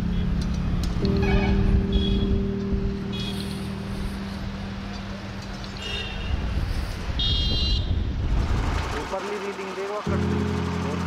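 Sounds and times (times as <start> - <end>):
street traffic noise: 0.0 - 11.0
high-pitched horn toots: 1.1 - 2.4, 3.1 - 3.8.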